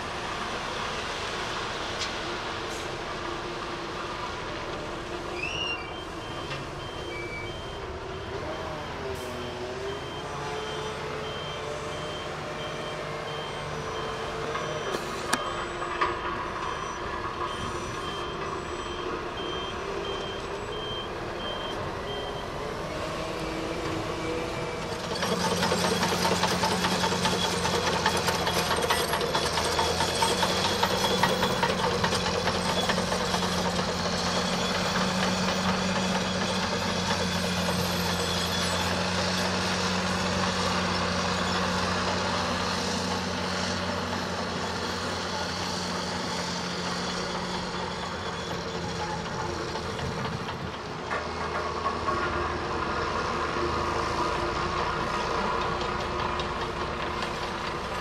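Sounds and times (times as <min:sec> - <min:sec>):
bulldozer engine with clatter: 0:00.0 - 0:58.0
diesel engine running: 0:00.0 - 0:58.0
reversing beeper: 0:05.3 - 0:27.6.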